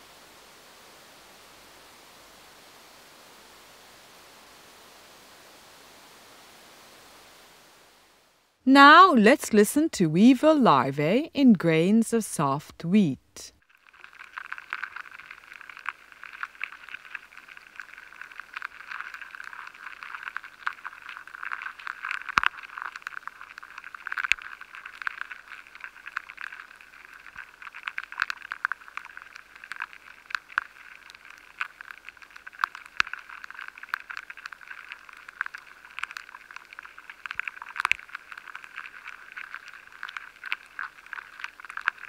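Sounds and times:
steady hiss: 0.0s - 9.0s
larvae chewing inside grain: 10.3s - 42.0s.

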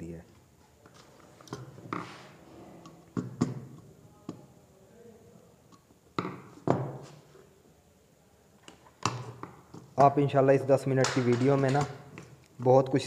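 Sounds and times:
knocks on hard tabletop: 6.2s - 7.1s.

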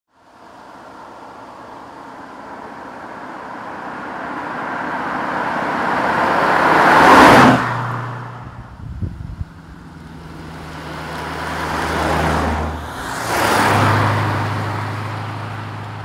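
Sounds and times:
car driving past: 9.6s - 16.0s.

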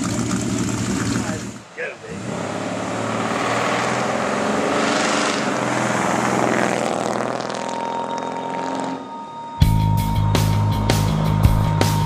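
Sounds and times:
pickup truck driving past: 0.0s - 9.1s.

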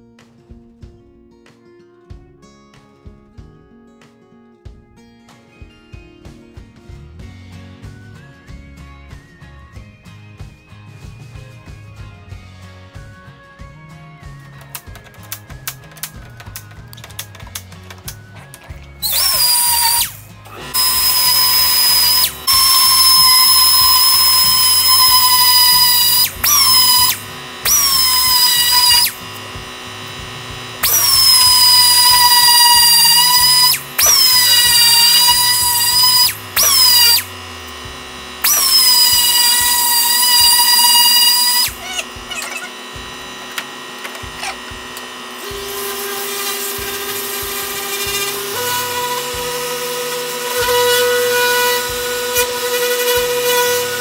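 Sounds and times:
orbital sander humming: 14.6s - 54.0s
small sander whining in bursts: 14.9s - 54.0s.

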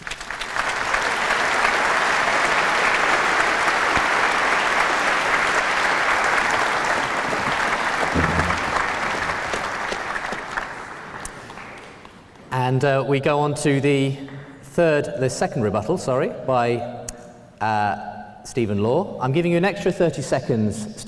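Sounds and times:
large audience applauding: 0.0s - 12.2s.

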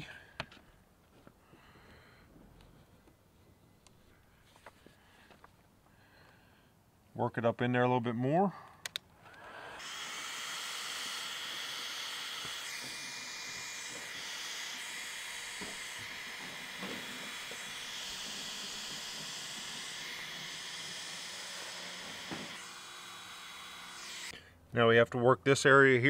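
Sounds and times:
heat gun blowing air: 9.3s - 24.4s.

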